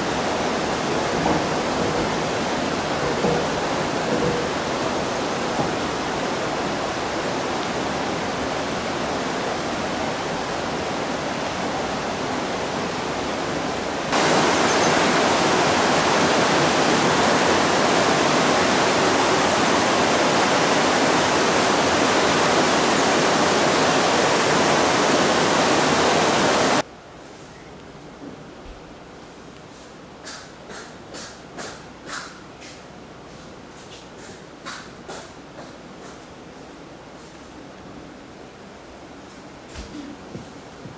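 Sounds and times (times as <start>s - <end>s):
river rushing: 0.0s - 26.9s.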